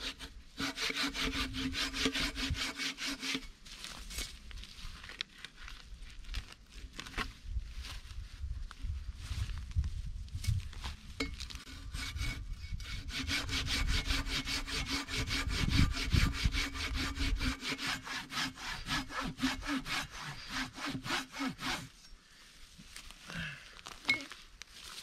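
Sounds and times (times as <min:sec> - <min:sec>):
hand saw cutting a log: 0:00.0 - 0:03.6, 0:11.6 - 0:22.0.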